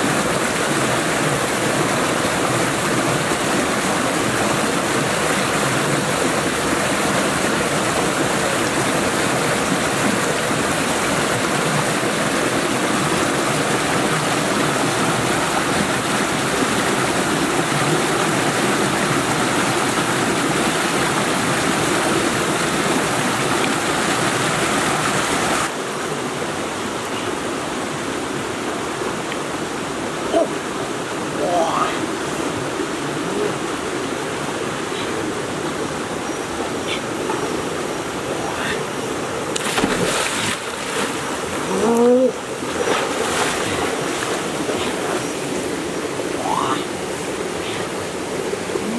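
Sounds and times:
stream rushing over stones: 0.0 - 48.9.

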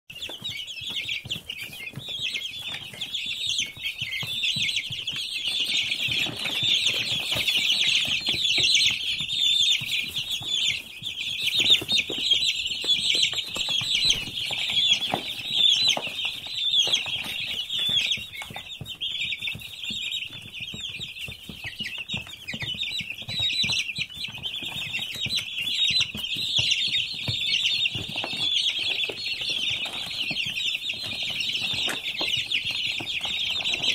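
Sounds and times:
chicks peeping: 0.1 - 33.9.

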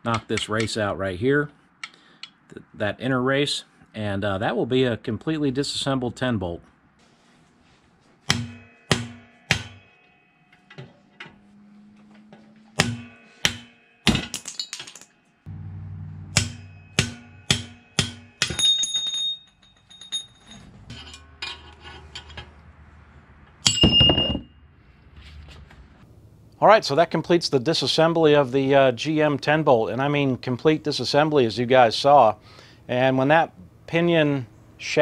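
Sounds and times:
hammer blows on metal: 8.3 - 10.7, 12.7 - 14.2, 16.2 - 18.8
ringing metal clinks: 16.6 - 22.4, 23.6 - 24.5.

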